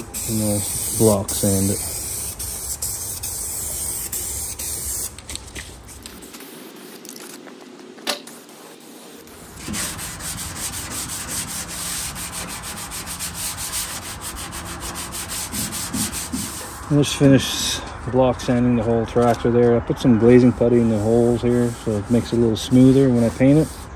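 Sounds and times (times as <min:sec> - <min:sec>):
sanding block rubbing: 0:00.0 - 0:05.1, 0:08.3 - 0:17.4, 0:20.0 - 0:23.9
aerosol can spraying: 0:00.0 - 0:07.1, 0:08.3 - 0:16.8, 0:20.5 - 0:23.9.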